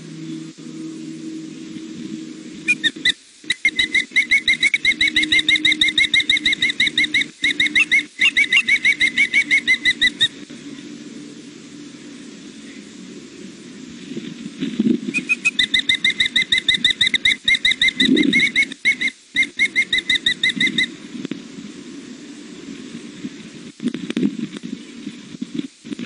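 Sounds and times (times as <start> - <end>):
steady low hum: 0.0 - 26.0
osprey shrill whistled chirps: 2.6 - 10.4, 15.1 - 20.9.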